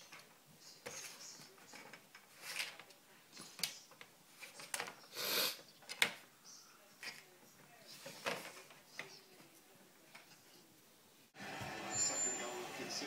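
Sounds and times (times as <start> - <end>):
rustles and scrapes on phone: 0.0 - 5.8, 7.0 - 10.7
short hissing bursts: 5.1 - 5.6.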